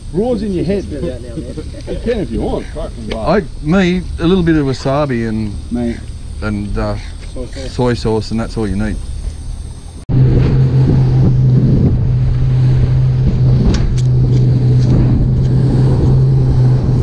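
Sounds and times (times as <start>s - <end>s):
faint outdoor ambience: 0.0s - 17.0s
motorboat engine: 9.0s - 17.0s
wind and water rushing: 10.1s - 17.0s.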